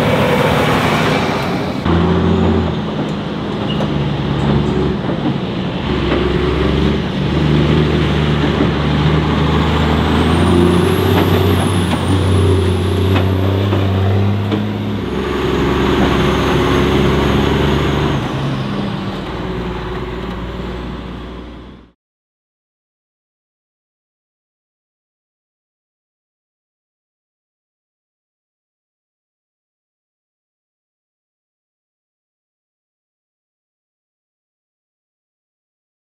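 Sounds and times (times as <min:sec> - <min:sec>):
truck diesel engine driving by: 0:00.0 - 0:22.0.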